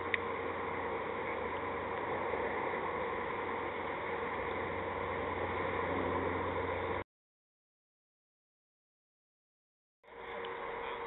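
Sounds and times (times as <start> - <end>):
low outdoor hum: 0.0 - 7.0, 10.0 - 11.0.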